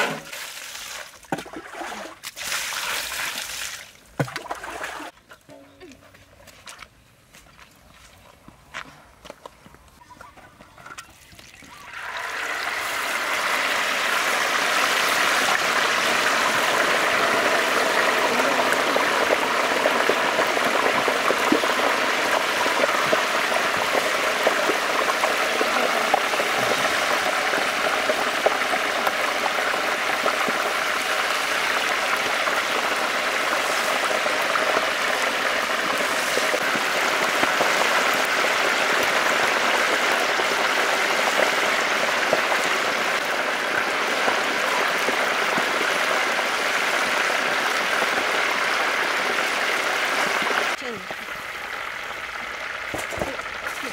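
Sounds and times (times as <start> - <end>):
loud sizzling in hot oil: 11.8 - 53.9.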